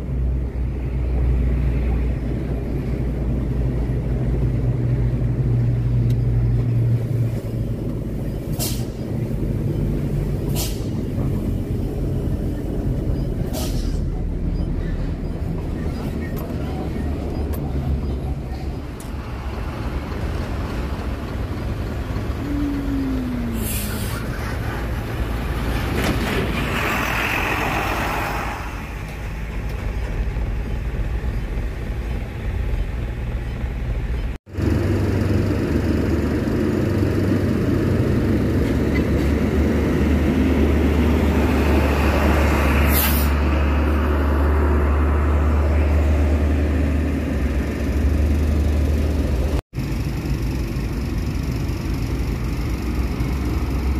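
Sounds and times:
diesel truck engines running: 0:00.0 - 0:53.9
air brakes hissing: 0:08.5 - 0:09.1, 0:10.4 - 0:11.1, 0:13.4 - 0:14.2, 0:23.5 - 0:24.7, 0:42.9 - 0:43.5.

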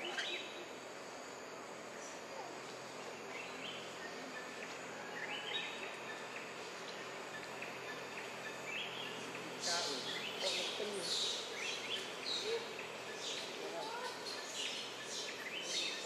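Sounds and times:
insects hissing: 0:00.0 - 0:16.0.

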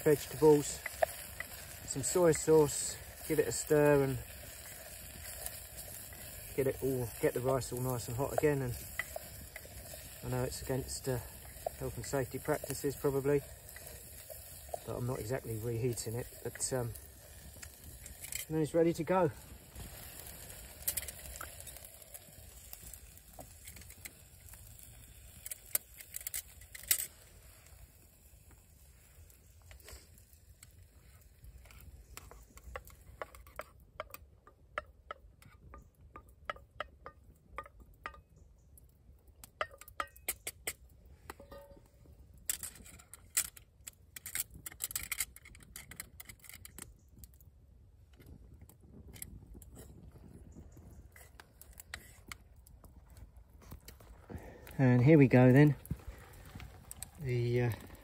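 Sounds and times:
campfire crackles: 0:00.0 - 0:58.0
metal spoon scraping pot: 0:04.3 - 0:18.5.

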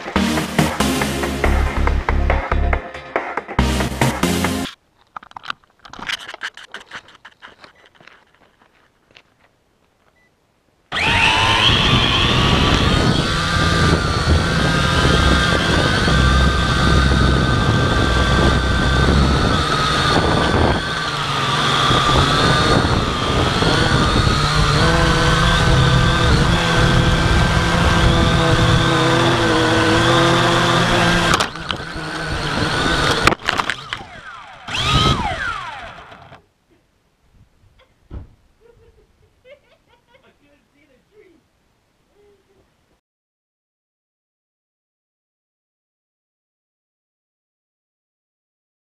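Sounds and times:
drone propellers whirring: 0:10.9 - 0:36.4.

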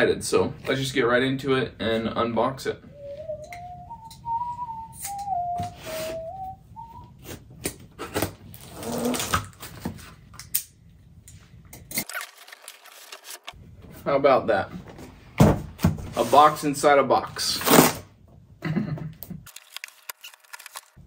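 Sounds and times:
man whistling a tune: 0:02.8 - 0:07.2.

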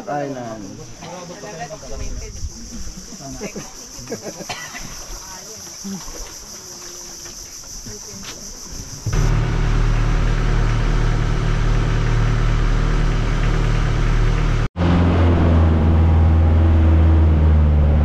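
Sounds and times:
motorboat engine droning: 0:09.1 - 0:18.0.

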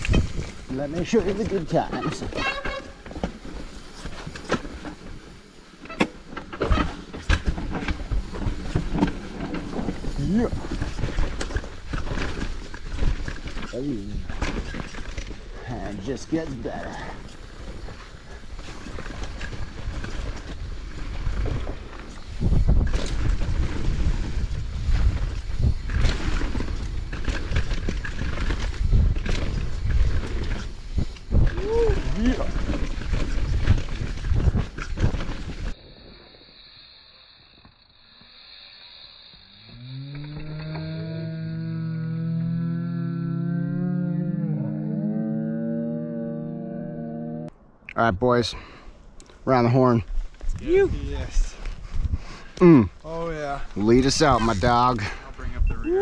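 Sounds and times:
bike knocks and rattles: 0:00.0 - 0:15.4
bike knocking and rattling: 0:00.0 - 0:41.0
bike tyres on dirt: 0:00.0 - 0:46.4, 0:48.4 - 0:56.0
wind buffeting microphone: 0:22.3 - 0:27.9.

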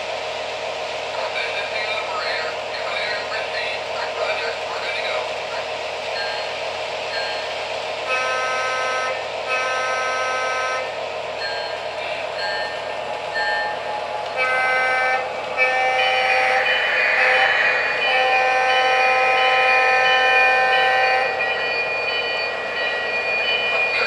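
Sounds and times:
model train rolling on track: 0:00.0 - 0:24.0
model train horn blasts: 0:08.0 - 0:11.0, 0:14.3 - 0:21.6.

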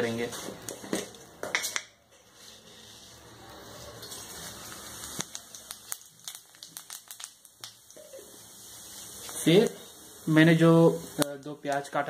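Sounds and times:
seeds sizzling in hot oil: 0:02.2 - 0:12.0
oil pops and crackles: 0:04.0 - 0:08.3, 0:11.2 - 0:11.9
seeds clicking into pan: 0:04.1 - 0:08.0, 0:11.1 - 0:12.0.

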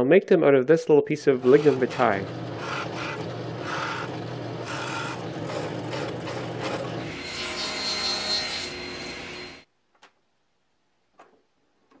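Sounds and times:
drill press boring wood: 0:01.4 - 0:09.6
machine hum with high whine: 0:01.4 - 0:09.6.

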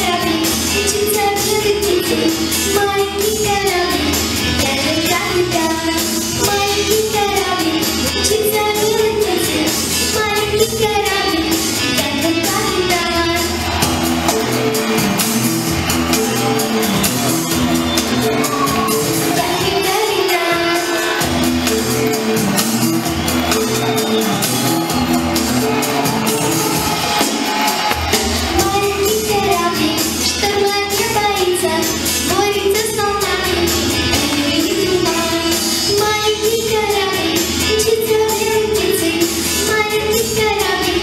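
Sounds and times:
girl singing into microphone: 0:00.0 - 0:13.5, 0:28.6 - 0:41.0
pop backing track: 0:00.0 - 0:41.0.

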